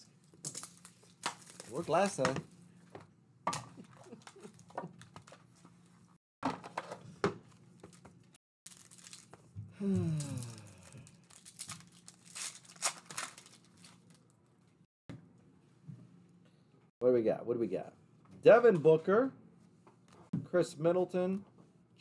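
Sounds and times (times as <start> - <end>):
foil wrappers crinkling and tearing: 0.4 - 2.2, 7.8 - 9.4, 10.2 - 14.4.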